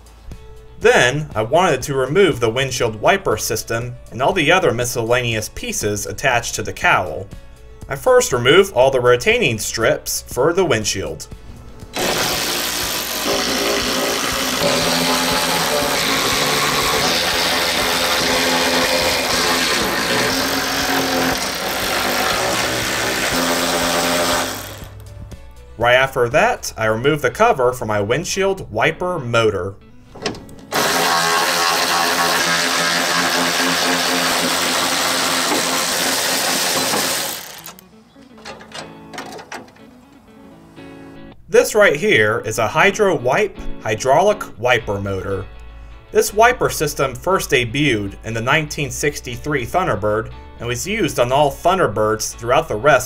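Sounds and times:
cordless ratchet motor whirring: 12.0s - 25.0s, 30.7s - 37.8s.

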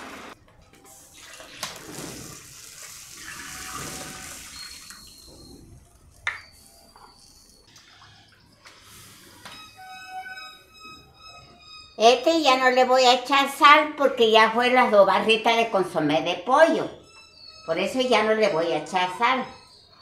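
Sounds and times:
water pouring and splashing: 1.0s - 5.3s.

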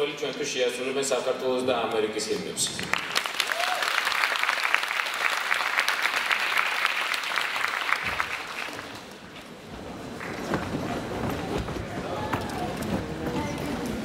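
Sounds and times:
audience applauding: 2.8s - 9.4s, 10.1s - 10.6s.

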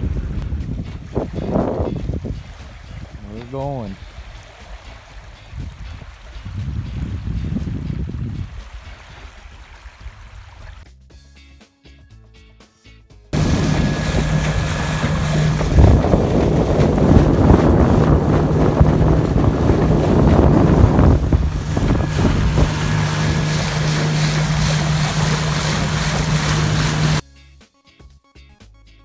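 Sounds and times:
water slapping against hull: 0.0s - 10.8s, 13.4s - 27.2s
wind buffeting microphone: 0.0s - 10.8s, 13.4s - 27.2s
outboard motor running: 13.4s - 27.2s.

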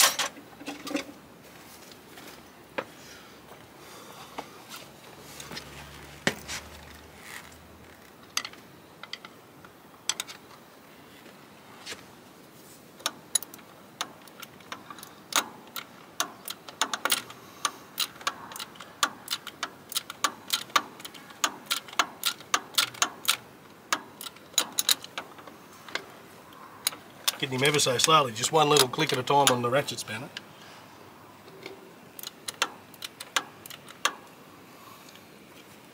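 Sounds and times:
ratchet spanner clicking: 13.0s - 26.0s.

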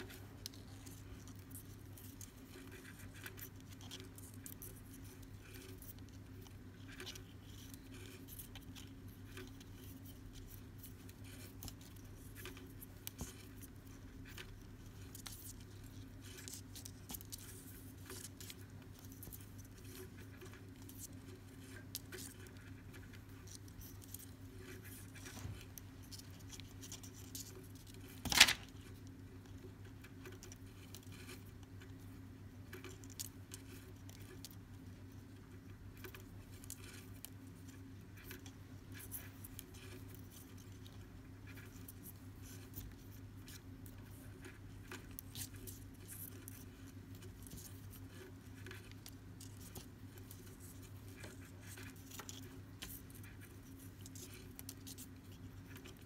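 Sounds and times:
cord rustling: 23.5s - 28.9s.

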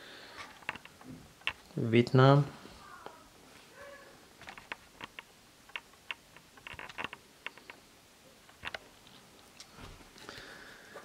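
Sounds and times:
soft handling clicks and rustles: 0.3s - 1.8s, 4.4s - 11.0s.

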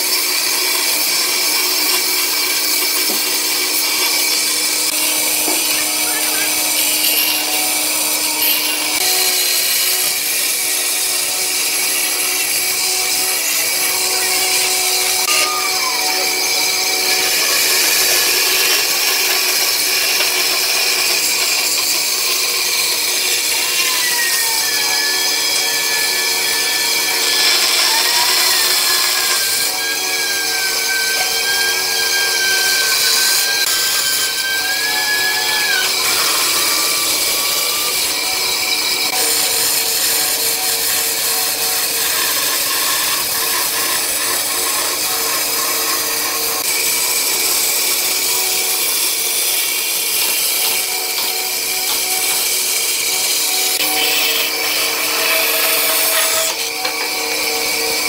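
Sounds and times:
bandsaw blade cutting wood: 0.0s - 58.0s
bandsaw motor hum: 0.0s - 58.0s
thin wavering whine: 12.5s - 18.0s.

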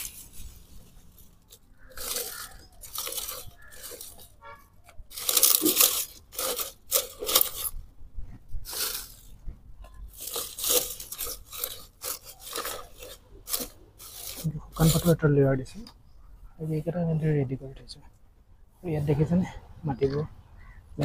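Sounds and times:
dry leaves crunching and rustling: 0.0s - 7.8s, 8.6s - 15.2s.

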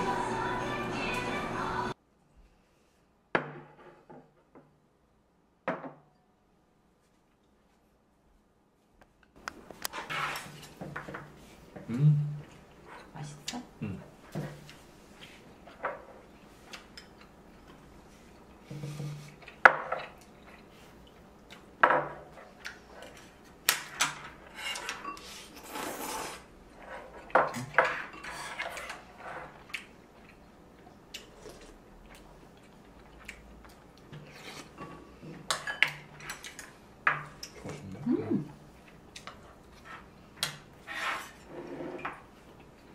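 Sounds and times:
chopsticks and spoons clinking bowls: 23.0s - 26.2s, 34.2s - 38.0s.

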